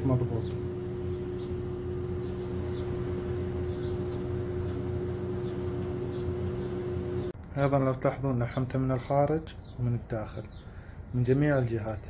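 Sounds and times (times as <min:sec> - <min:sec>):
steady machine hum: 0:00.0 - 0:07.4
small bird chirping: 0:00.3 - 0:07.4.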